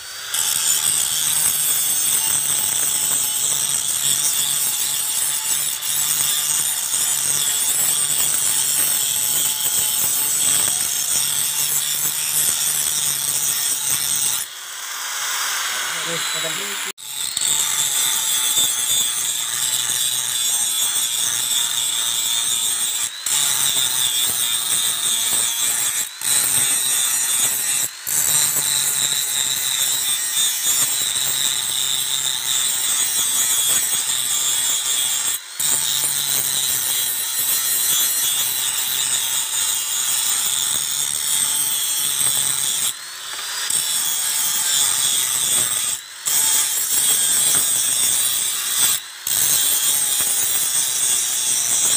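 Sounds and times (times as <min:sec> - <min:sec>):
angle grinder grinding metal: 0:00.0 - 0:51.9.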